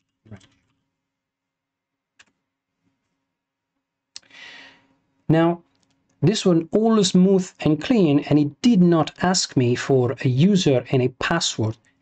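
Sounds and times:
click: 5.7 - 6.2.

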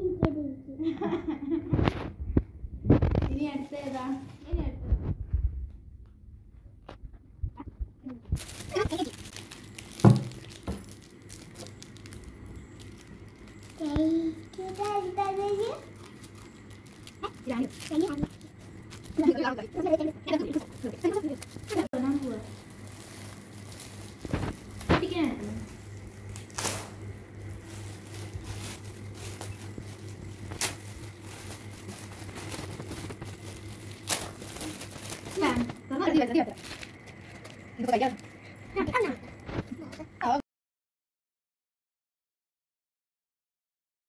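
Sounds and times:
sharp rustles of wrapping: 2.9 - 5.2, 8.2 - 39.8
plastic packaging crinkling: 8.2 - 39.7
scissors cutting plastic: 25.7 - 35.8.

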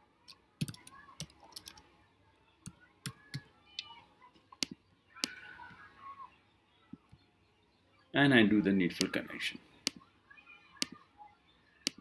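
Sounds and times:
computer keyboard typing: 0.6 - 1.8.

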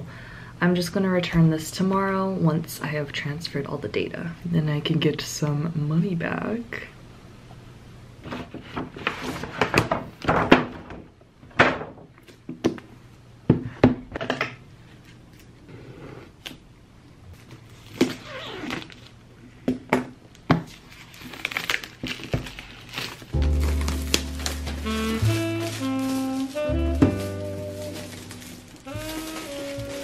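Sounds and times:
paper bag rustling: 20.7 - 30.0
scissors cutting plastic wrap: 20.7 - 30.0.

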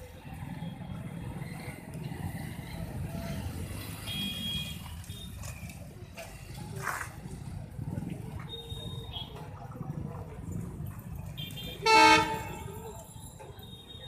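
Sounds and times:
motorcycle engines rumbling: 0.0 - 14.0
street traffic: 0.0 - 14.0
horn beep: 11.4 - 12.8.

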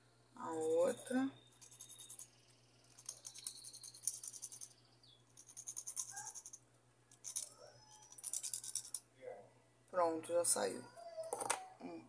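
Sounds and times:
emery board filing a nail: 1.6 - 4.8, 5.4 - 6.6.

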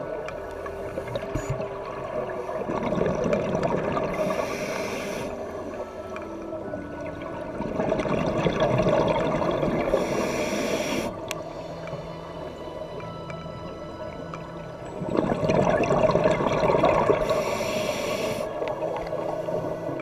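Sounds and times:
bubbling exhaled air underwater: 1.1 - 5.4, 7.5 - 11.1, 15.0 - 20.0
regulator inhale hiss: 4.1 - 5.6, 9.9 - 12.2, 17.2 - 18.6.

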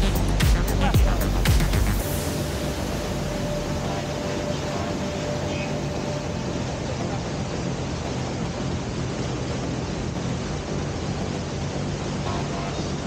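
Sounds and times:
waterfall roaring: 0.0 - 13.0.

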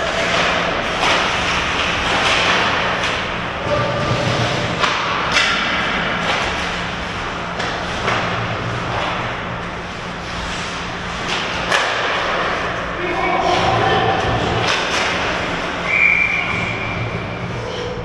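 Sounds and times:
steady low hum: 0.0 - 18.0
stick and puck knocks: 4.7 - 6.5, 11.3 - 12.5, 14.6 - 15.3.

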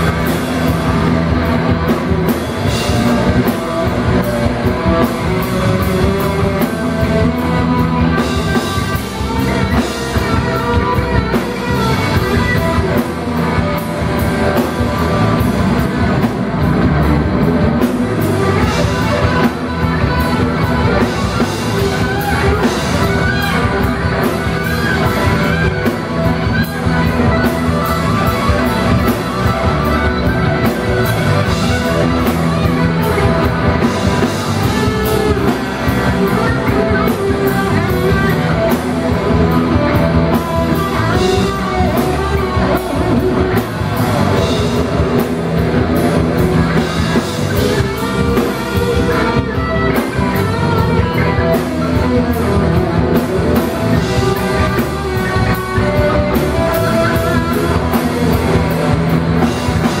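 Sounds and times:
bass guitar: 0.0 - 60.0
drum kit: 0.0 - 60.0
electric guitar: 0.0 - 60.0.

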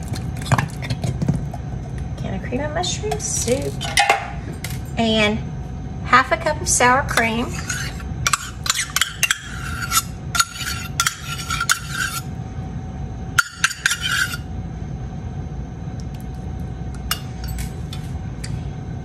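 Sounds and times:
spoon scraping a metal cup: 7.4 - 12.3, 13.4 - 14.5.

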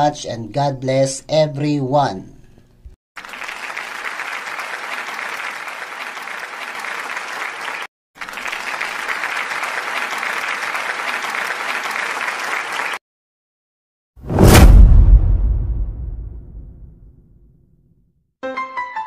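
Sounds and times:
crowd applauding: 3.2 - 13.0.

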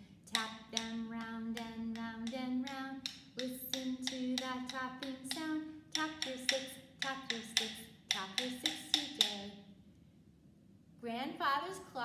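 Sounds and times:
rhythm sticks tapping: 0.3 - 9.5
woman singing a children's song: 0.3 - 9.7, 11.0 - 12.0.

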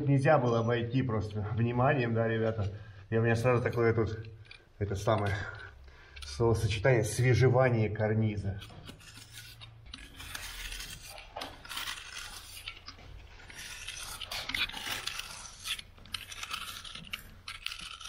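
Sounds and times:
blade scraping paint: 8.2 - 18.0.

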